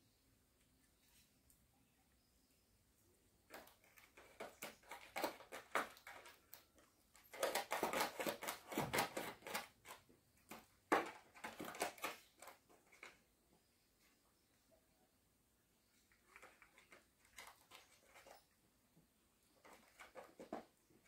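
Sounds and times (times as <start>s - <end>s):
cat crunching prey: 3.5s - 10.0s.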